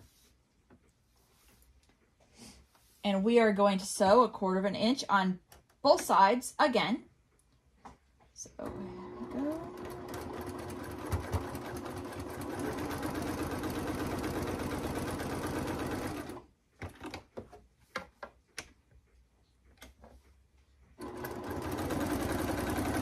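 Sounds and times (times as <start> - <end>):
sewing machine stitching: 8.6 - 17.2, 21.0 - 23.0.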